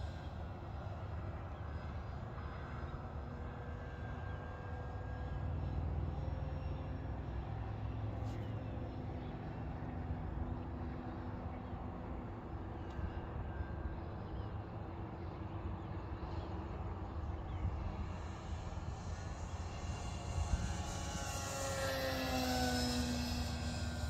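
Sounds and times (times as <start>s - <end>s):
distant model airplane motor drone: 0.0s - 24.0s.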